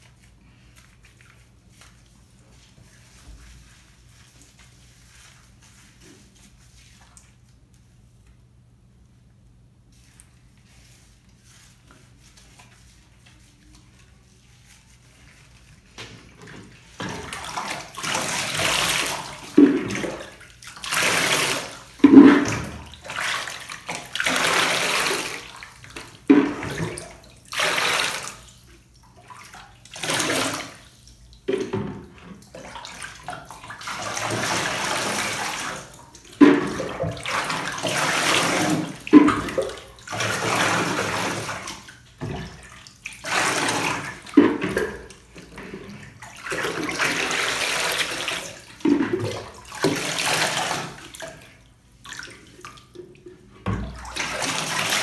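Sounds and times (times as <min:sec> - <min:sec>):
water poured and splashing: 0:16.6 - 0:55.0.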